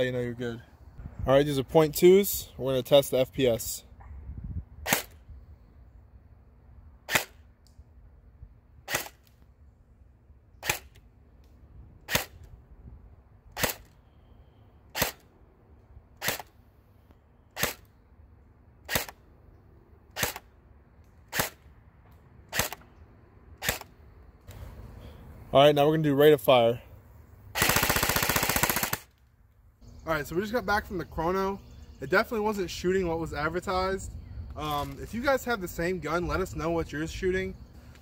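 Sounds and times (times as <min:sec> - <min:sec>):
airsoft gun shots: 0:04.8 - 0:05.2, 0:07.1 - 0:07.4, 0:08.9 - 0:09.2, 0:10.6 - 0:11.0, 0:12.1 - 0:12.4, 0:13.6 - 0:13.9, 0:14.9 - 0:15.2, 0:16.2 - 0:16.5, 0:17.6 - 0:17.8, 0:18.9 - 0:19.2, 0:20.2 - 0:20.5, 0:21.3 - 0:21.6, 0:22.5 - 0:22.8.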